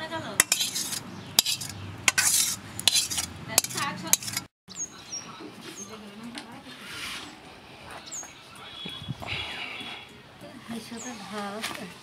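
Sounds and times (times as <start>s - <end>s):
metal utensils clinking and scraping: 0.4s - 4.5s.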